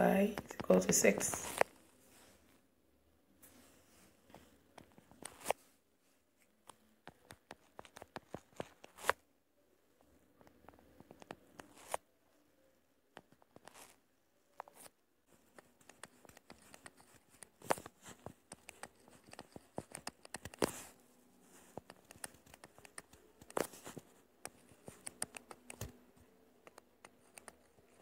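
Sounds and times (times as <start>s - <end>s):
light scratches: 10.5s - 12.0s, 14.6s - 28.0s.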